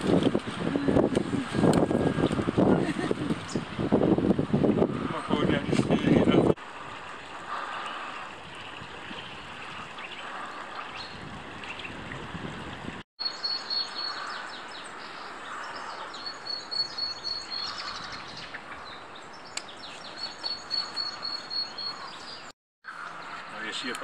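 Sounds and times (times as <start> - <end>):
stream running: 0.0 - 24.0
small birds chirping and singing: 9.6 - 12.0, 13.2 - 24.0.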